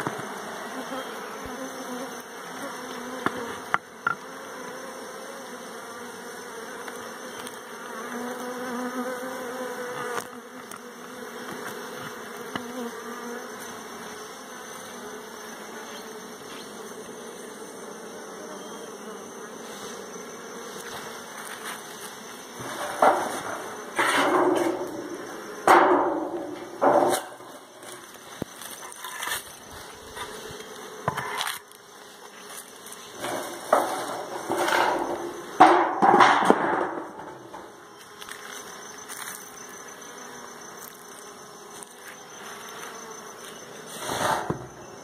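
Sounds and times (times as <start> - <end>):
honeybees buzzing: 0.0 - 45.0
sharp knocks: 25.6 - 27.4, 33.2 - 37.6.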